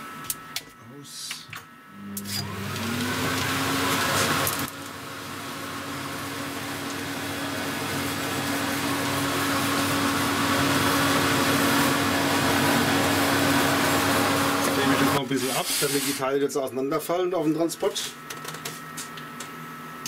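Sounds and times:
workshop vacuum motor hum: 0.0 - 20.0.

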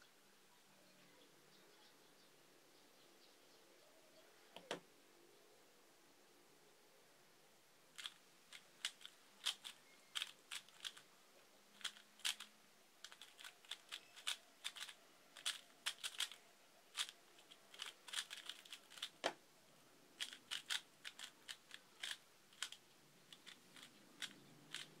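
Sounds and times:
puzzle cube clicking: 8.0 - 11.0, 11.7 - 19.4, 20.2 - 25.0.

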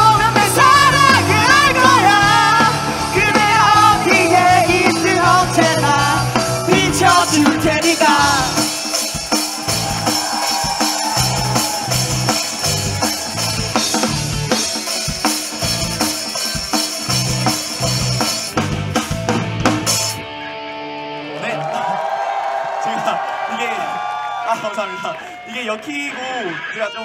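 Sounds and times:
person singing: 0.0 - 8.8
live rock band playing: 0.0 - 22.0.

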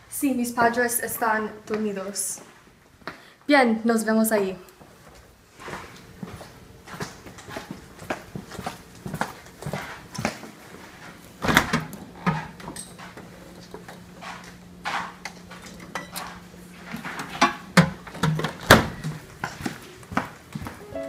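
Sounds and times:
steady low hum: 4.6 - 21.0
light footsteps: 4.8 - 11.2.

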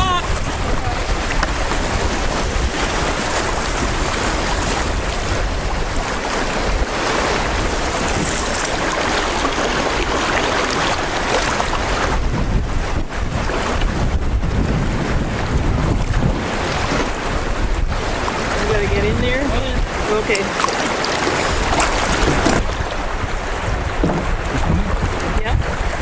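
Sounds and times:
river water rushing over rocks: 0.0 - 12.2, 19.8 - 26.0
wind buffeting microphone: 0.0 - 26.0.

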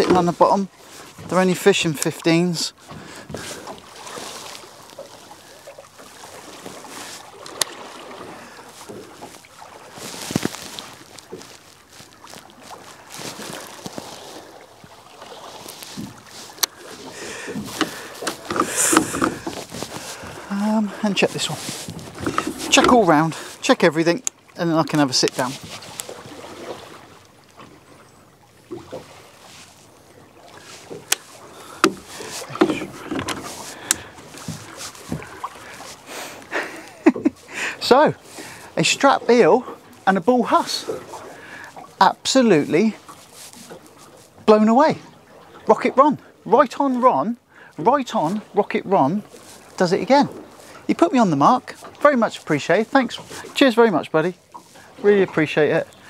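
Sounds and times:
water lapping against boat hull: 0.0 - 56.0
knock on boat: 17.5 - 19.6, 31.8 - 33.5
fishing tackle clicks and knocks: 17.5 - 20.2, 21.8 - 23.2, 30.9 - 35.4.

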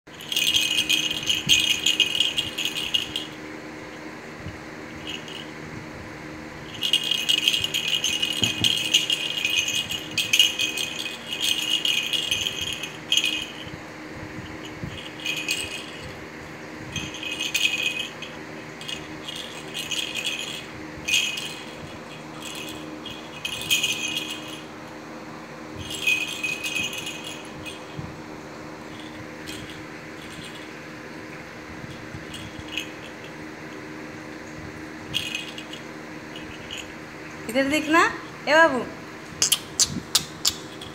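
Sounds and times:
plastic toy rattle shaking: 0.1 - 3.4, 4.9 - 5.6, 6.6 - 13.8, 14.4 - 16.2, 16.9 - 24.7, 25.8 - 28.0, 28.9 - 30.8, 31.9 - 33.4, 35.1 - 38.2, 39.4 - 40.9.

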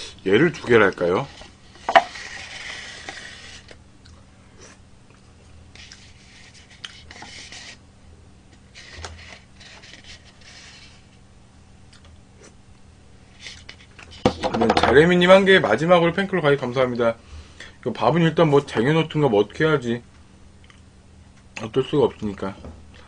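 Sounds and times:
chopsticks scraping a bowl: 1.1 - 3.8.

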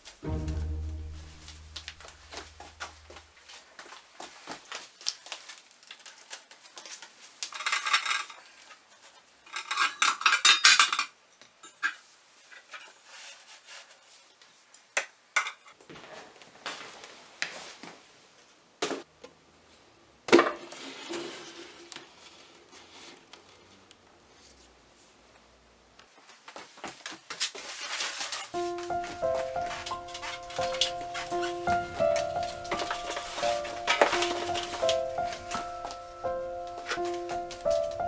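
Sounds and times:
pan and lid rattling clatter: 7.5 - 8.4, 9.5 - 11.1, 28.2 - 35.9.

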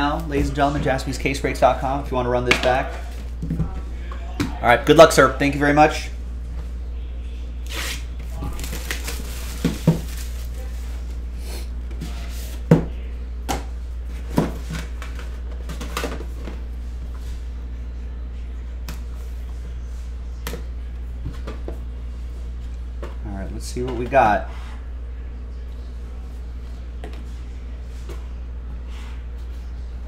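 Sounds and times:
steady low hum: 0.0 - 30.0
plastic shrink wrap crinkling: 7.7 - 11.2.

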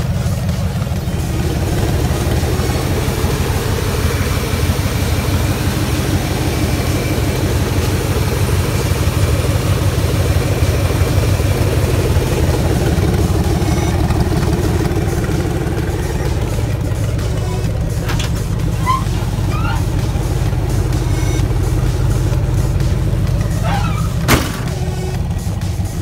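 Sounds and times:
car engine idling: 0.0 - 26.0.

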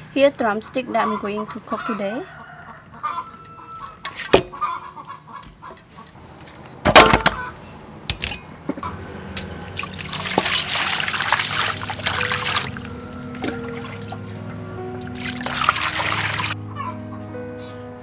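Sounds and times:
tap water splashing into bowl: 9.8 - 12.7.

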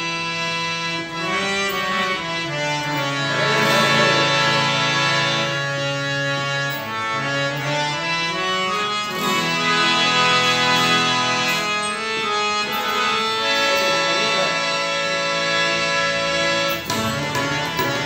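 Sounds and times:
harmonium melody: 0.0 - 18.0
acoustic guitar: 1.8 - 18.0
tabla drumming: 16.8 - 18.0.

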